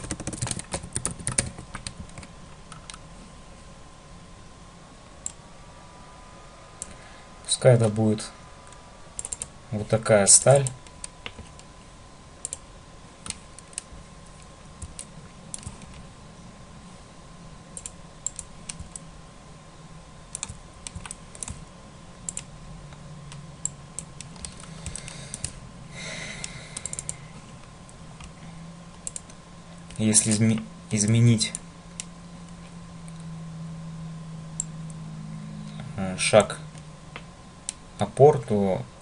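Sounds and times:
faint electrical hum: 0:00.0 - 0:39.0
mouse and keyboard clicks: 0:08.7 - 0:09.5, 0:14.8 - 0:16.0, 0:20.3 - 0:21.6, 0:22.3 - 0:22.5.

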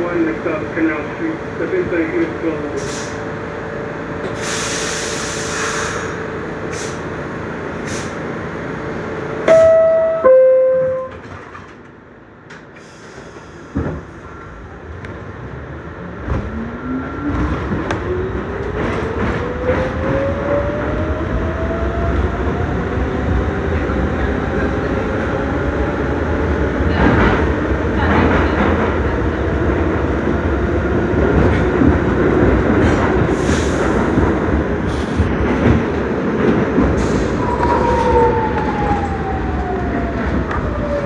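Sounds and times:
train doors closing thump: 0:09.5 - 0:10.0
two-note falling door chime: 0:09.5 - 0:11.3.

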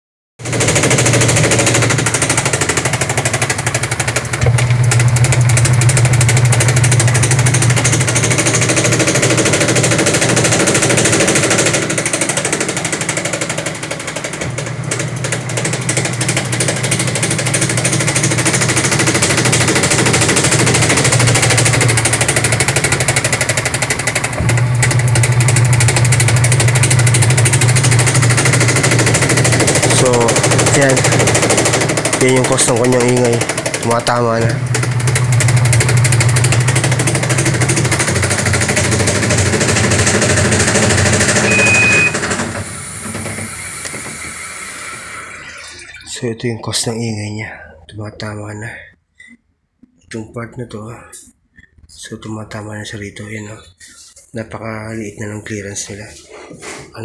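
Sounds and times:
washing machine motor hum: 0:00.4 - 0:46.9
washing machine tub clattering: 0:00.5 - 0:44.3.

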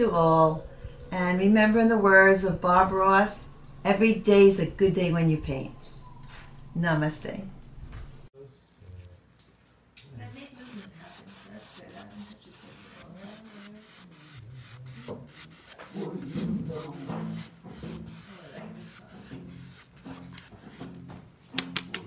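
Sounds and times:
rubbing and scratching strokes: 0:08.6 - 0:22.0.

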